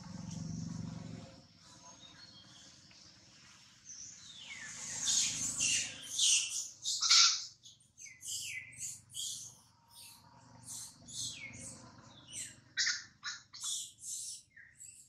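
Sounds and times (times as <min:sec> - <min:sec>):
baby monkey shrill squeals: 0:05.2 - 0:07.6.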